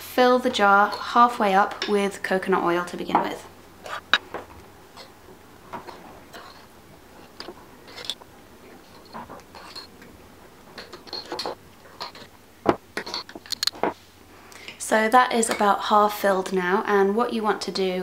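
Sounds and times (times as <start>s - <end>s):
teaspoon scraping glass jar: 6.3s - 8.2s, 8.8s - 9.9s, 10.8s - 12.3s, 13.0s - 13.6s.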